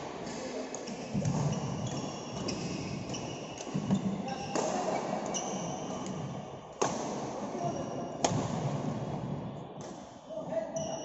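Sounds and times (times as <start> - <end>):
shoes squeaking on court: 1.1 - 4.5, 5.3 - 6.1
racket hitting shuttlecock: 8.2 - 8.8.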